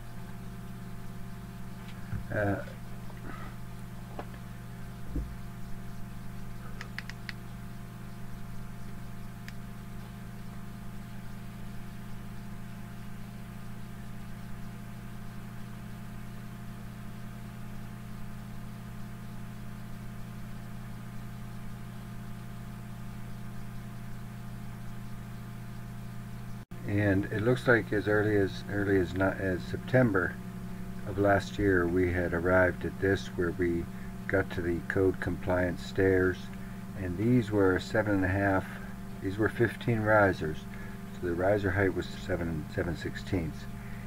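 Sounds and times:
low electrical hum: 0.0 - 44.0
faint clicks: 6.8 - 7.4.

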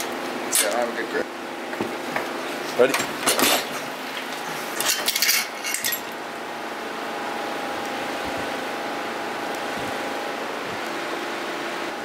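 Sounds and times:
steady background hum: 0.0 - 12.0
metal scooter parts clanking: 2.9 - 3.7, 4.8 - 6.2.

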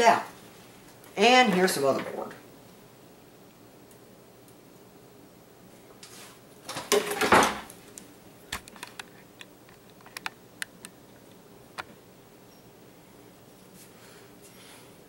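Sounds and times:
light clicks and taps: 8.0 - 11.9.

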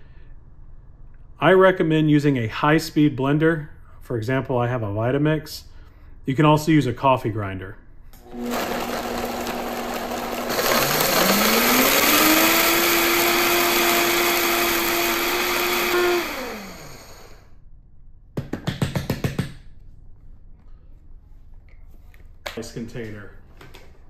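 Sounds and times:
blender motor grinding spices: 8.2 - 17.4.

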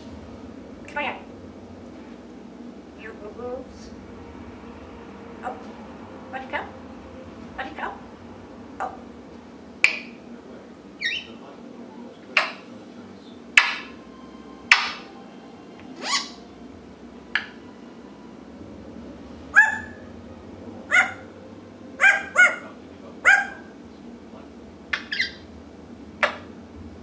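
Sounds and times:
parrot calling: 11.0 - 11.4, 12.3 - 12.7, 14.7 - 15.1, 15.9 - 16.5, 19.5 - 20.1, 20.9 - 23.8, 24.8 - 25.5, 26.2 - 26.6.

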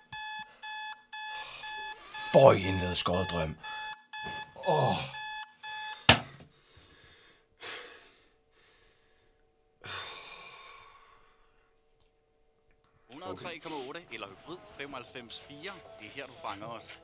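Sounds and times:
alarm clock beeping: 0.0 - 6.3
faint steady hum: 4.7 - 13.6.

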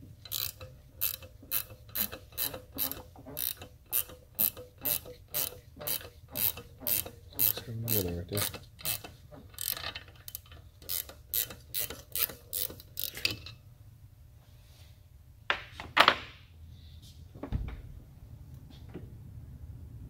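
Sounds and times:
ratchet wrench clicking: 0.2 - 13.5.

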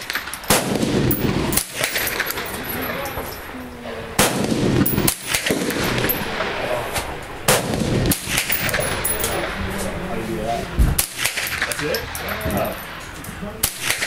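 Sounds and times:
rifle shots echoing: 0.0 - 3.0, 4.1 - 6.7, 7.4 - 9.6, 13.6 - 14.0.

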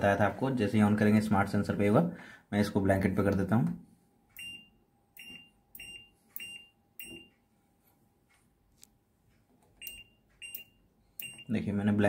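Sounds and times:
control panel beeping: 4.3 - 7.4, 9.7 - 11.6.

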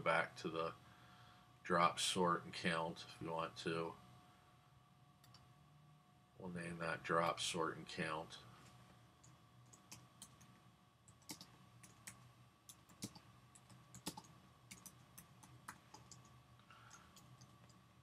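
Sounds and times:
low steady hum: 0.0 - 18.0
typing on a keyboard: 9.7 - 10.5, 11.1 - 16.3, 16.9 - 17.8.

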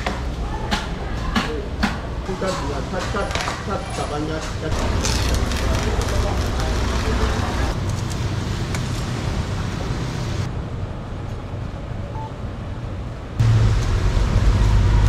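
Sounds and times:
busy fish stall background noise: 0.0 - 10.5.

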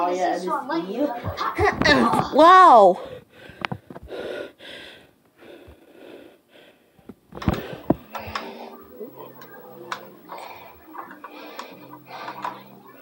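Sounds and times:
boy breathing hard: 2.8 - 8.8.

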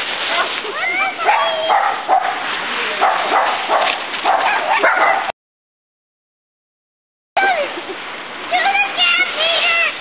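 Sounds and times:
dry leaves rustling: 0.0 - 5.2
dog barking: 1.2 - 5.3.

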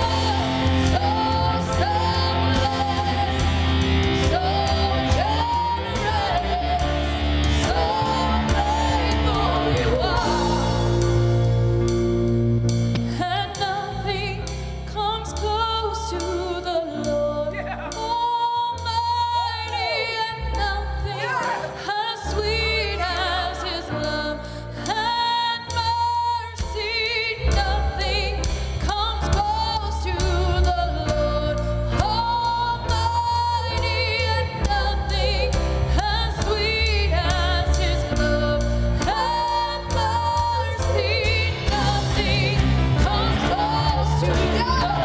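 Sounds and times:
person singing: 0.0 - 11.0, 29.2 - 45.0
band with bass and steady beat: 0.0 - 45.0.

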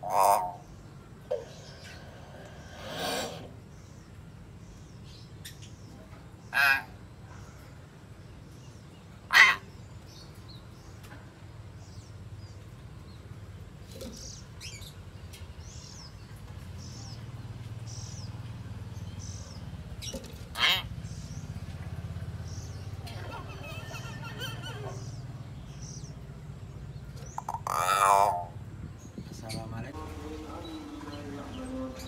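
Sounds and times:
myna harsh calls: 0.0 - 0.6, 9.3 - 9.7, 27.4 - 28.6.

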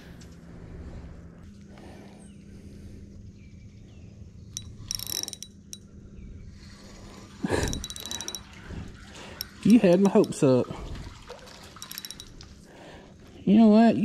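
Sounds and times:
fishing reel whirring and clicking: 4.5 - 5.9, 7.5 - 8.6, 9.2 - 10.5, 11.8 - 12.5.

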